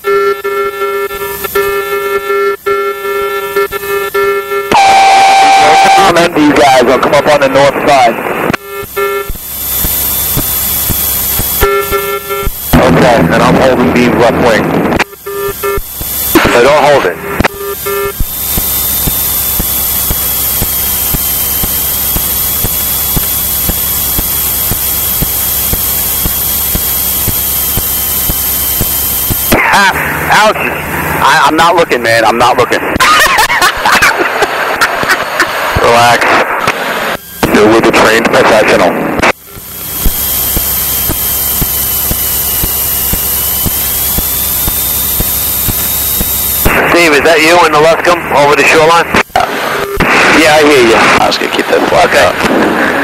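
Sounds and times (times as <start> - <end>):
faint high whine: 0.0 - 53.0
regular ticking: 8.8 - 12.8, 14.9 - 16.5, 17.3 - 29.6, 39.3 - 46.8.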